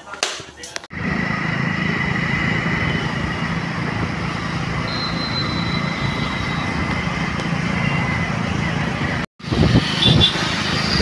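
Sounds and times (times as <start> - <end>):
road and wind noise: 0.7 - 11.0
motorcycle engine hum: 0.9 - 11.0
brief higher tone: 4.9 - 6.8
thin steady whistle: 4.9 - 6.8.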